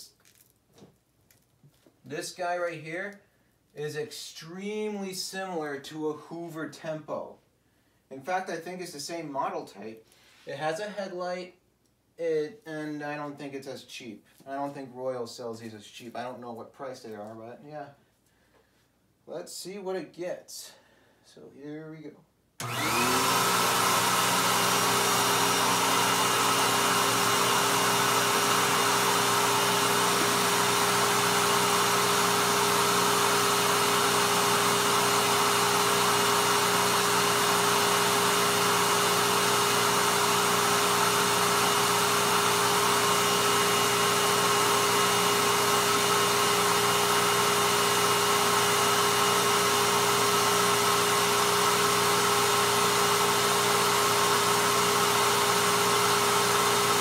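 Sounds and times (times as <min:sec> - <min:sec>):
vacuum cleaner running: 0:22.6 - 0:57.0.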